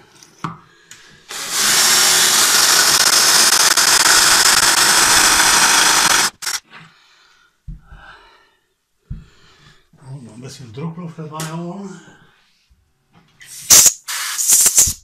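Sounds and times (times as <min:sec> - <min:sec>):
cordless drill boring: 0:01.3 - 0:06.6.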